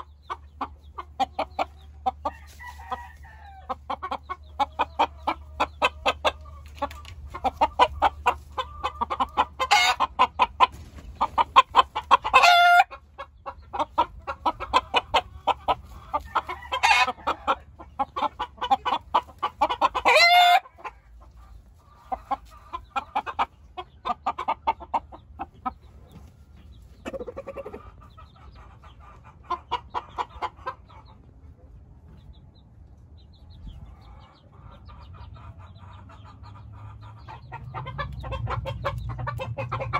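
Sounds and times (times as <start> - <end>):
chickens clucking: 0.0 - 39.9
chicken loud drawn-out call: 20.0 - 20.8.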